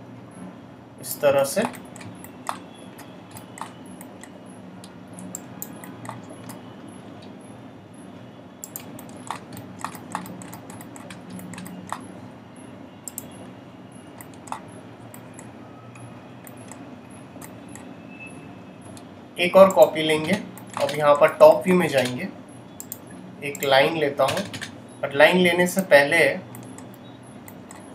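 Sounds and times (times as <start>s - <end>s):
steady low hum: 0.0s - 27.9s
mouse and keyboard clicks: 1.6s - 4.3s, 5.2s - 6.6s, 8.6s - 12.1s, 14.2s - 16.8s, 19.7s - 21.0s, 26.5s - 27.9s.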